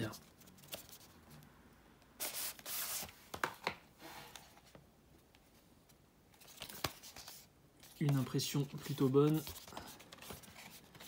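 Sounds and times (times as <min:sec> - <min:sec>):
cardboard packaging rustling: 0:06.4 - 0:11.0.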